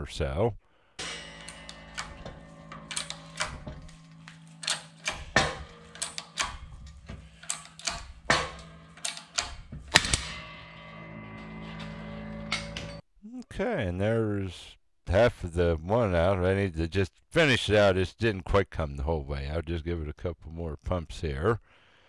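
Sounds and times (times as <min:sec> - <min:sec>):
metallic clicks and knocks: 0:01.0 - 0:13.0.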